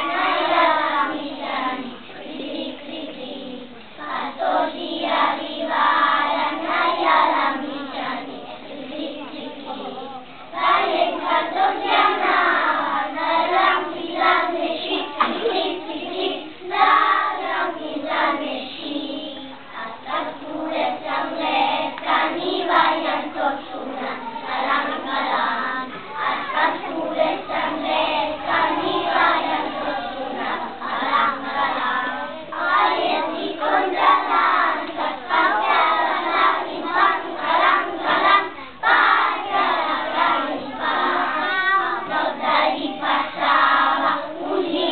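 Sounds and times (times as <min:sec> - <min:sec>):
children's choir singing: 0:00.0 - 0:44.9.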